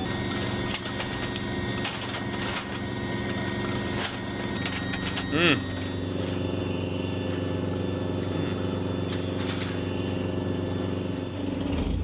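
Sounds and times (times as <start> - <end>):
diesel engine idling: 0.0 - 11.8.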